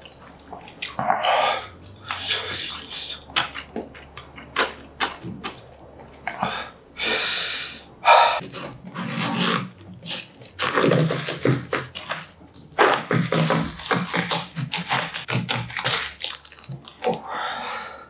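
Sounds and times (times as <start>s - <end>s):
close eating sounds: 0.0s - 6.9s, 8.2s - 17.6s
long breathy hiss: 6.5s - 8.4s
knife cracking watermelon rind: 8.4s - 17.2s.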